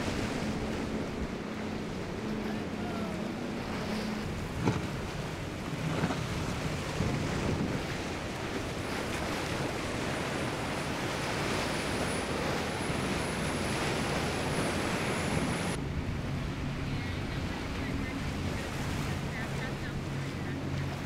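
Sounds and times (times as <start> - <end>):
faint engine hum: 0.0 - 21.0
rush of water and spray: 0.0 - 21.0
wind noise on microphone: 5.8 - 8.0.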